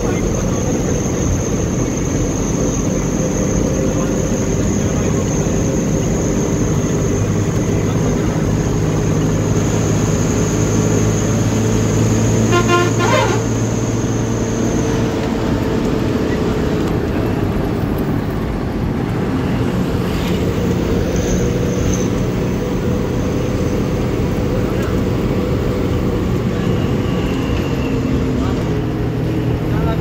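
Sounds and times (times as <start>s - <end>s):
bus engine running: 0.0s - 30.0s
warbling horn blast: 12.3s - 14.0s.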